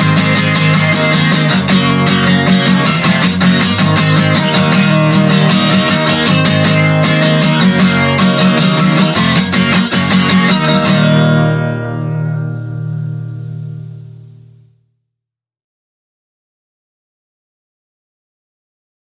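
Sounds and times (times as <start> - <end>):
guitar strummed hard: 0.0 - 14.8.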